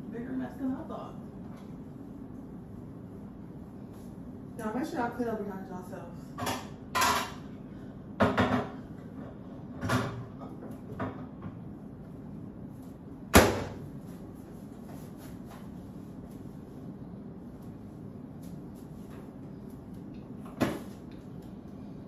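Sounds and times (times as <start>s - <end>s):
kitchen items knocking and clattering: 6.4s - 7.4s, 8.2s - 11.6s.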